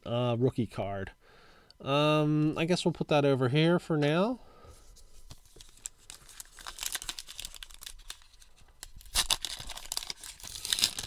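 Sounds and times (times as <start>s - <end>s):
foil wrapper tearing and crinkling: 5.4s - 11.0s.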